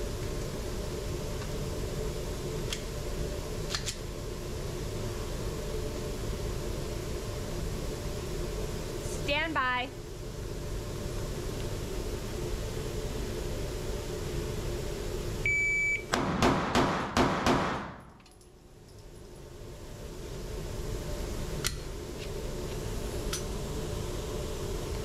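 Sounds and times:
steady low hum: 0.0s - 25.0s
shot timer beep: 15.4s - 16.1s
pistol shots echoing: 16.2s - 18.0s.

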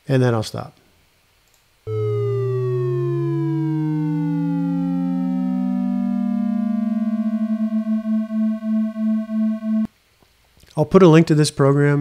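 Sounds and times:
synthesized tones gliding: 1.9s - 9.9s.

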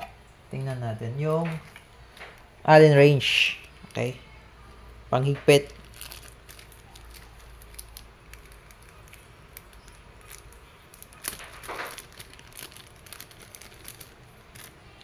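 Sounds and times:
plastic bag crinkling: 5.2s - 15.0s.

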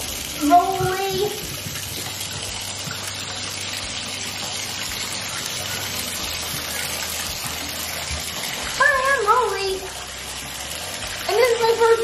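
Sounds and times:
water pouring into bathtub: 0.0s - 12.0s.

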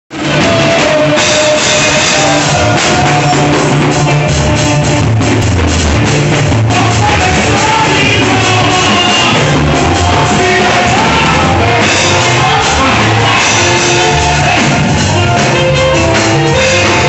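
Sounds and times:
drum kit: 0.1s - 17.0s
keyboard: 0.1s - 17.0s
choir singing: 7.5s - 14.9s.

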